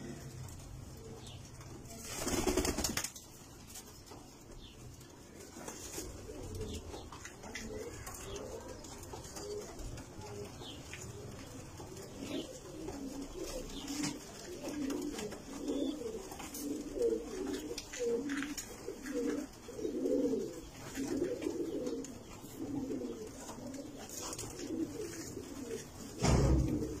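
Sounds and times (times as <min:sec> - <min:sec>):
pigeons cooing: 0:03.9 - 0:27.0
loud thump: 0:26.2 - 0:27.0.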